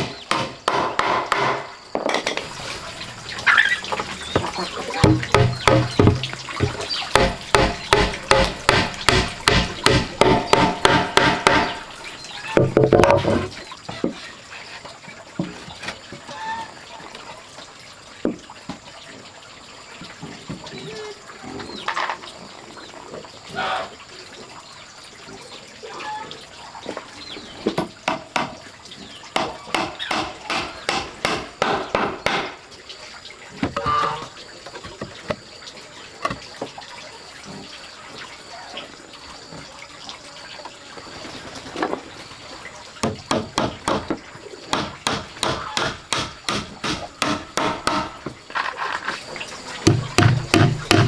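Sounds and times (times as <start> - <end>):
hammer knocking nails into wood: 5.0 - 11.8, 49.9 - 51.0.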